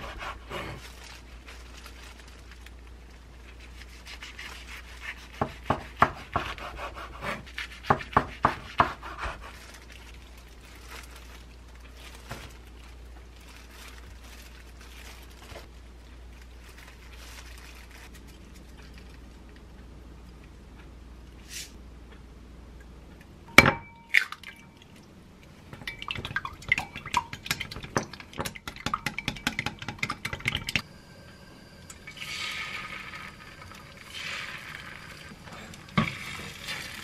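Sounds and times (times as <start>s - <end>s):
faint handling sounds: 0.7s - 5.3s, 9.5s - 19.8s
knife rasping through seaweed roll: 3.6s - 9.7s.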